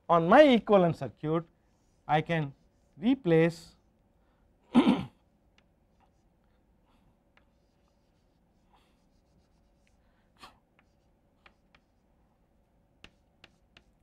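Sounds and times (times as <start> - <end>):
chalk scratching on chalkboard: 1.6 - 3.9, 5.9 - 6.3, 7.4 - 10.0, 10.8 - 12.1, 13.0 - 14.0.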